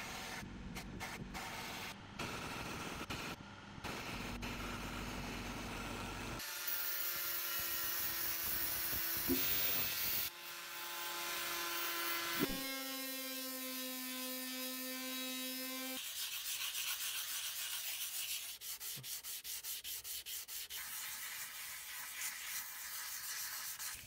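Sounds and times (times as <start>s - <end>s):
angle grinder grinding blade: 6.4s - 16.0s.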